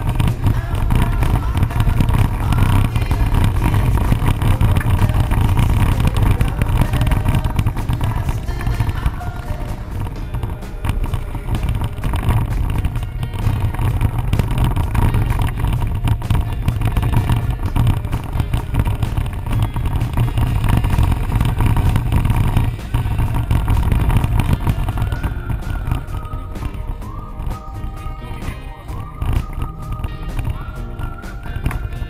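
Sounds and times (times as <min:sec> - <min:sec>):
vehicle engine and road rumble: 0:00.0 - 0:32.0
vehicle jolts on rough track: 0:00.0 - 0:32.0.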